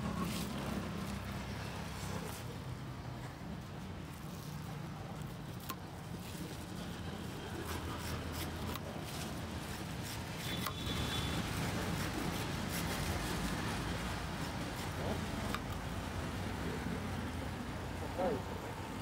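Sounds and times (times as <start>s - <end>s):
knife scraping fruit rind: 4.2s - 15.8s.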